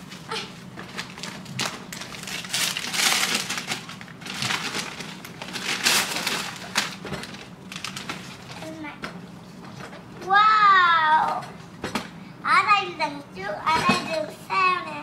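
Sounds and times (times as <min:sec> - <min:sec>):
wrapping paper crumpling: 0:00.0 - 0:08.7.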